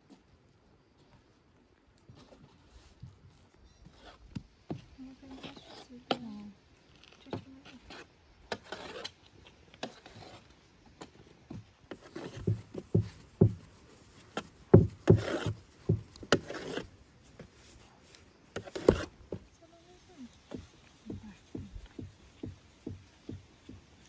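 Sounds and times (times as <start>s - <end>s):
knife scraping dough on tray: 7.7s - 9.2s, 11.9s - 12.6s, 14.3s - 15.6s, 16.2s - 16.9s, 18.6s - 19.2s.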